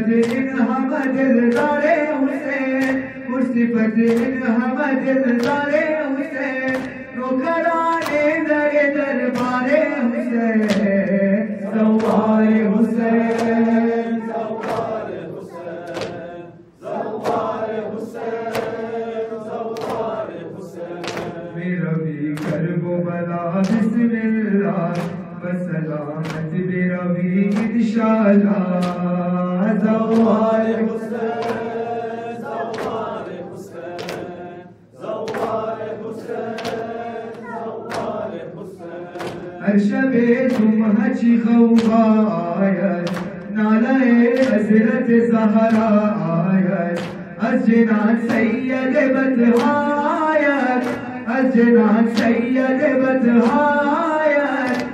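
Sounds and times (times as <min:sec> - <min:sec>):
men chanting a lament: 0:00.0 - 0:54.9
chest-beating slaps: 0:00.2 - 0:03.3, 0:04.0 - 0:04.6, 0:05.3 - 0:05.8, 0:06.6 - 0:07.3, 0:07.9 - 0:08.4, 0:09.3 - 0:09.8, 0:10.6 - 0:11.2, 0:11.8 - 0:12.6, 0:13.2 - 0:21.6, 0:22.3 - 0:22.7, 0:23.6 - 0:24.0, 0:24.8 - 0:25.5, 0:26.1 - 0:26.8, 0:27.4 - 0:27.9, 0:28.7 - 0:29.2, 0:30.0 - 0:39.6, 0:40.2 - 0:40.9, 0:41.8 - 0:42.2, 0:43.0 - 0:43.6, 0:44.3 - 0:44.7, 0:45.6 - 0:46.0, 0:47.0 - 0:47.4, 0:48.2 - 0:48.8, 0:49.5 - 0:49.9, 0:50.7 - 0:51.2, 0:52.1 - 0:52.5, 0:53.4 - 0:53.8, 0:54.6 - 0:54.9.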